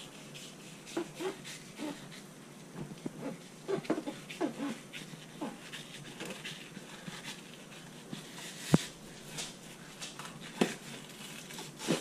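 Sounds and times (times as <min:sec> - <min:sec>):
knife scraping cutting board: 0:00.0 - 0:02.3, 0:03.2 - 0:09.5.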